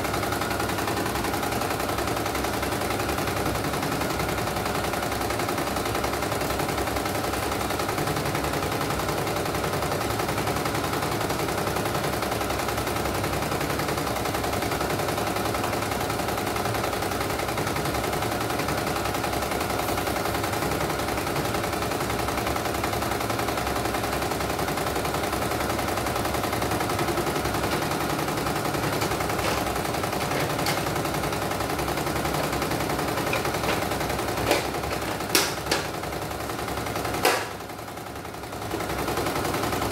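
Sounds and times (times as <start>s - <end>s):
embroidery machine needle clatter: 24.4s - 37.8s.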